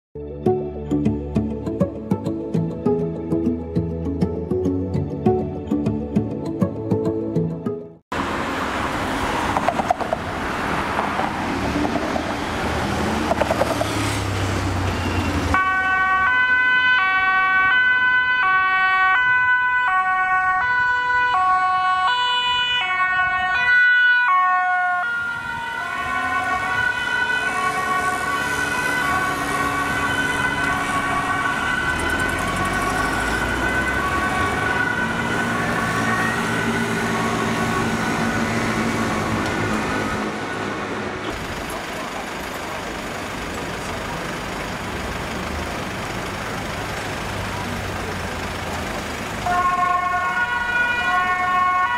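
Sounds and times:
engine and traffic noise: 0:01.0 - 0:51.9
ambulance two-tone siren: 0:13.3 - 0:40.9, 0:49.4 - 0:51.9.

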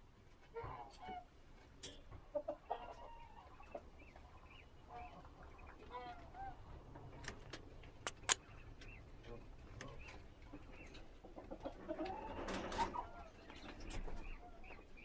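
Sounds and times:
chickens clucking: 0:00.2 - 0:15.0
sharp clicks: 0:08.0 - 0:08.4.

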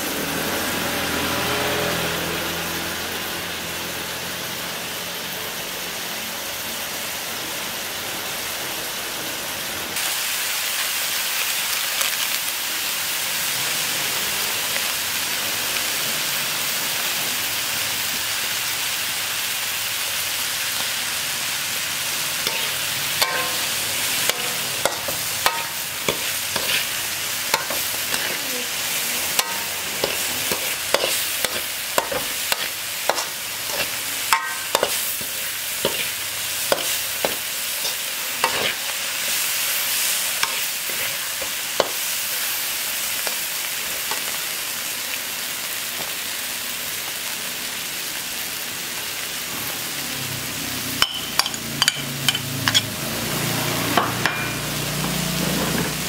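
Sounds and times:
food sizzling in a wok: 0:00.0 - 0:56.0
metal spatula scraping pan: 0:22.4 - 0:39.0, 0:51.0 - 0:53.0, 0:53.9 - 0:56.0.

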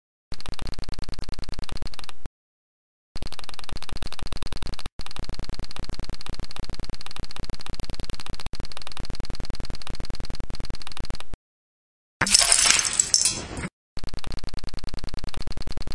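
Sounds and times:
rapid even clicking: 0:00.3 - 0:02.2, 0:03.2 - 0:11.4.

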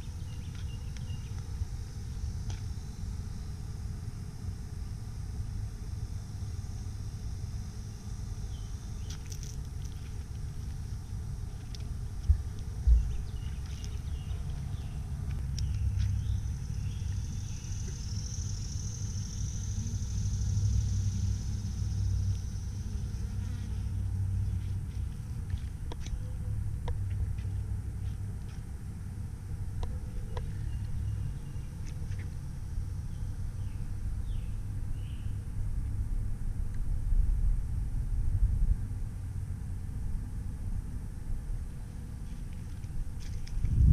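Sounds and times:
honeybees buzzing: 0:00.0 - 0:26.4
steady low rumble: 0:00.0 - 0:43.9.

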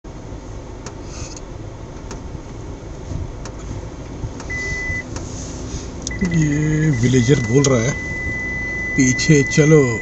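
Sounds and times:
vehicle cabin rumble on dirt track: 0:00.1 - 0:10.0
short high beep: 0:04.5 - 0:05.1, 0:06.1 - 0:10.0.

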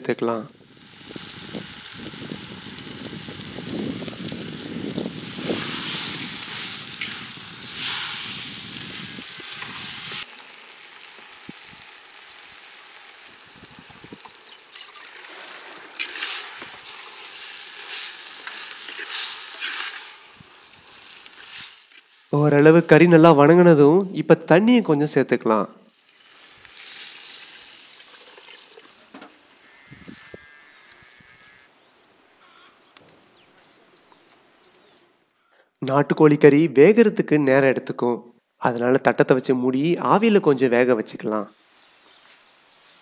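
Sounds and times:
chicken sizzling in oil: 0:00.5 - 0:22.5, 0:25.9 - 0:30.4.

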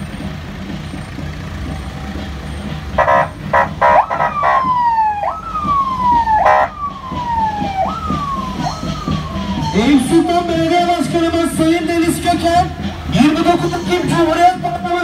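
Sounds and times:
vehicle engines rumbling: 0:00.0 - 0:15.0
vehicle siren sweeping: 0:02.6 - 0:14.9
horn honks: 0:02.9 - 0:04.7, 0:06.3 - 0:06.9.

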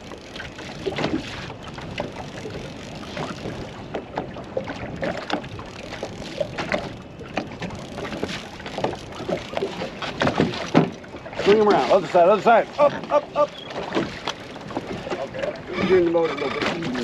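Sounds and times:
water slapping against a boat hull: 0:00.0 - 0:17.0.

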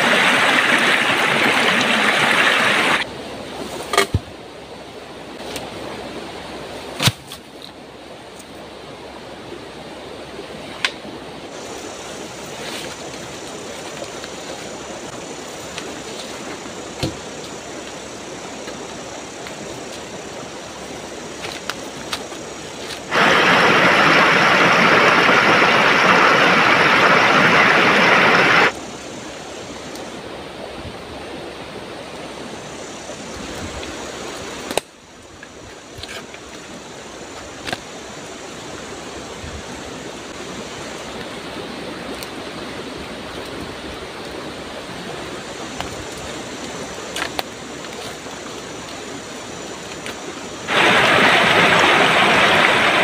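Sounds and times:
water spilling over rock ledge: 0:00.0 - 0:03.0, 0:23.1 - 0:28.7, 0:50.7 - 0:53.0
river rushing: 0:00.0 - 0:03.7, 0:07.8 - 0:53.0.

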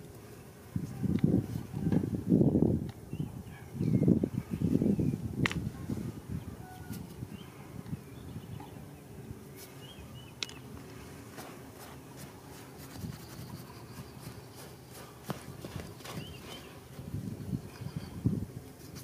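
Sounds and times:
hands scraping through dry soil: 0:10.8 - 0:17.9, 0:18.6 - 0:19.0.

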